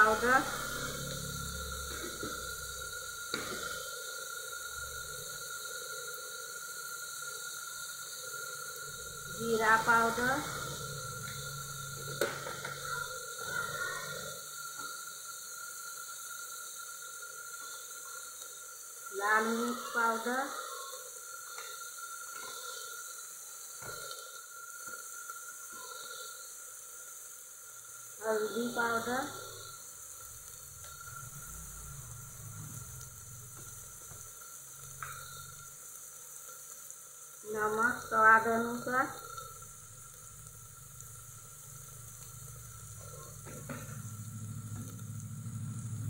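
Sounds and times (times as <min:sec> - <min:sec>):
low hum: 0:00.0 - 0:03.8, 0:08.2 - 0:14.3, 0:29.0 - 0:35.7, 0:37.8 - 0:46.0
frying sizzle: 0:00.0 - 0:46.0.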